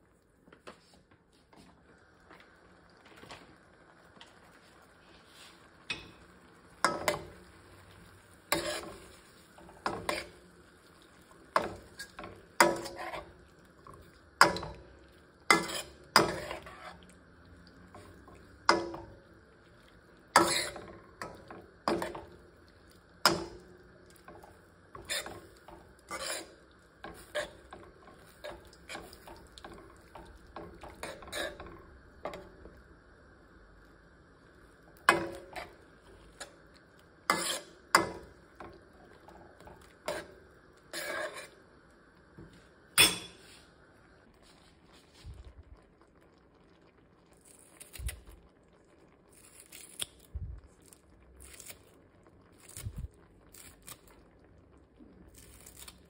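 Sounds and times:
metal spoon clinking against pan: 43.0s - 43.4s.

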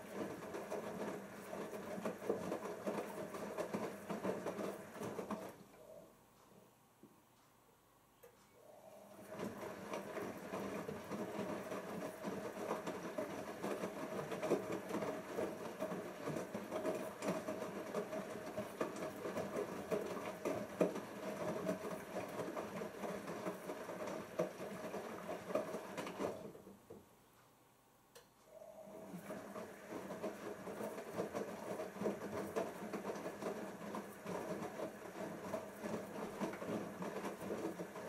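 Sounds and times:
washing machine motor whine: 0.0s - 6.2s, 8.6s - 26.7s, 28.5s - 38.0s
wet laundry sloshing in drum: 9.2s - 26.6s, 29.0s - 38.0s.

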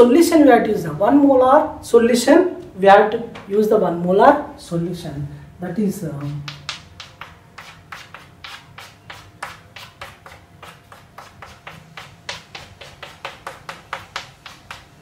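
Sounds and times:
chalk tapping and scratching on blackboard: 6.2s - 15.0s.

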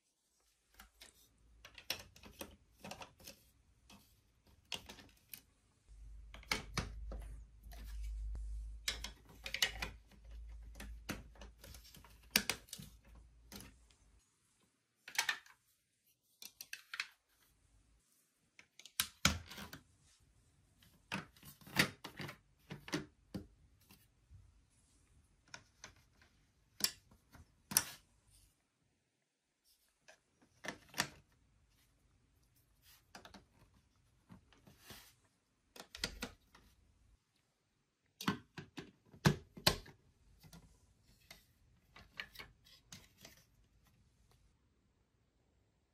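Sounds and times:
plastic toy blocks clicking: 0.8s - 3.4s, 8.8s - 13.7s, 16.4s - 17.2s.

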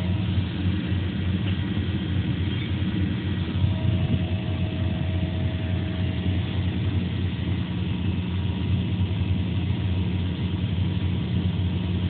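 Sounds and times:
cutting machine humming: 0.0s - 10.2s
faint thin tone: 3.6s - 6.9s.

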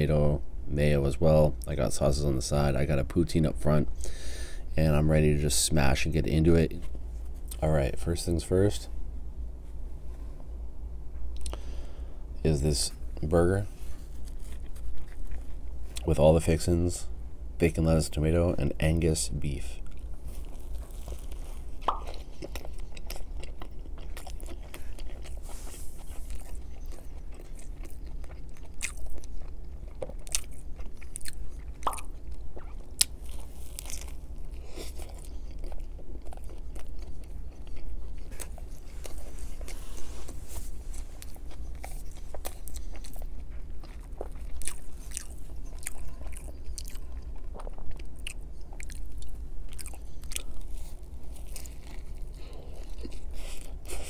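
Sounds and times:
steady low hum: 0.0s - 54.0s
man chewing food: 11.1s - 12.1s, 13.0s - 16.1s, 19.5s - 54.0s.

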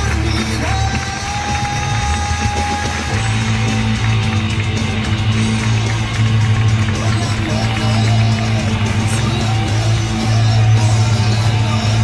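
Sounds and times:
loud music with held note: 0.0s - 12.0s.

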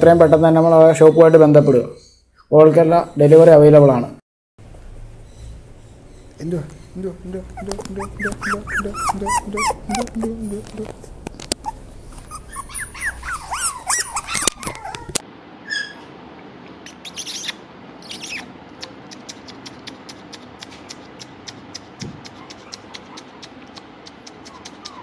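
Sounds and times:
puppies whimpering and yelping: 7.5s - 16.1s, 22.3s - 25.0s.

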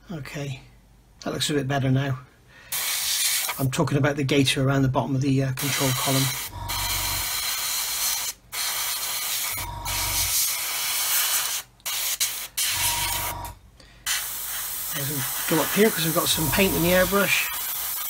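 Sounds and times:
airbrush spraying hiss: 2.7s - 3.6s, 5.6s - 12.8s, 14.0s - 18.0s.

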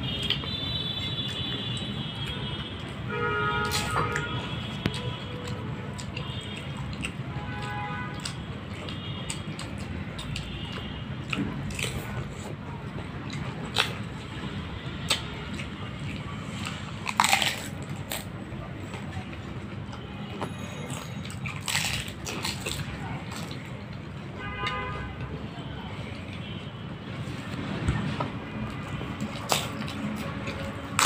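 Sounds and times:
crunching crisp shells: 0.1s - 18.4s, 20.7s - 23.8s, 28.7s - 31.0s.

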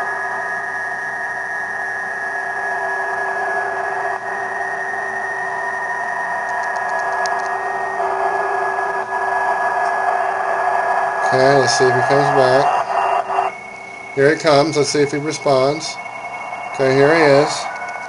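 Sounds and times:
keyboard clicks: 6.5s - 7.6s
radio band hiss: 6.7s - 13.5s, 14.2s - 17.9s
thin digital signal tones: 11.2s - 17.8s.

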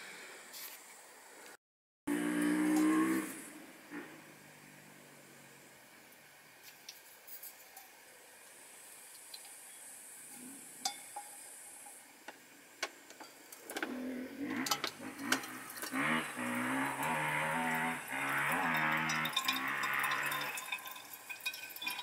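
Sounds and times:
water running into cup: 15.2s - 22.0s.

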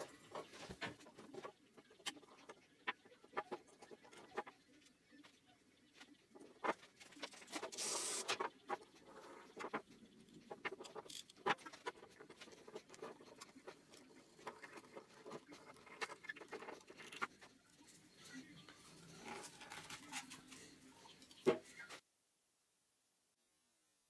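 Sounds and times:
short hiss: 7.7s - 8.4s
small parts and tools clicking: 10.5s - 17.4s.

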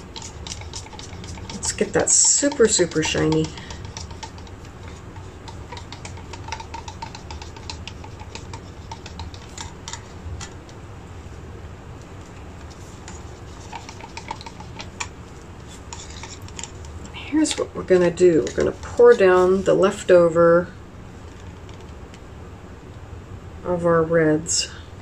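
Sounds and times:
stick tapping plastic cup: 0.0s - 10.7s, 12.6s - 19.8s
low steady hum: 0.0s - 25.0s.

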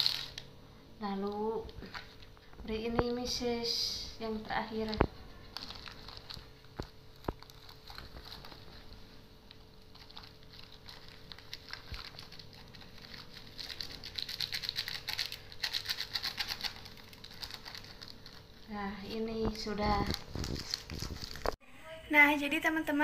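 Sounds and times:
plastic bag crinkling: 0.0s - 0.4s, 1.8s - 2.4s, 4.7s - 21.6s.

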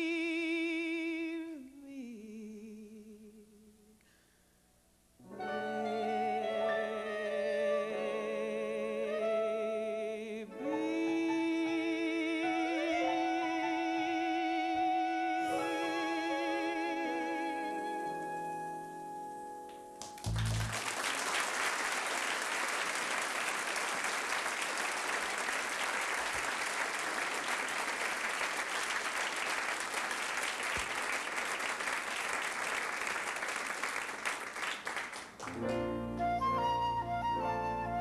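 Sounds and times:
flute melody: 5.3s - 20.7s, 35.6s - 38.0s
song final chord: 15.2s - 20.8s
audience applause: 20.0s - 35.9s.

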